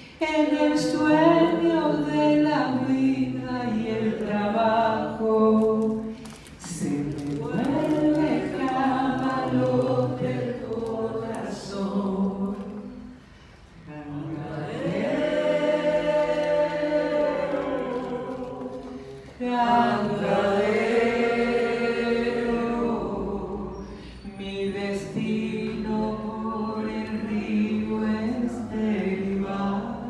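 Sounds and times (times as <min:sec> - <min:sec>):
woman singing unaccompanied: 0:00.2 - 0:13.1, 0:22.2 - 0:30.0.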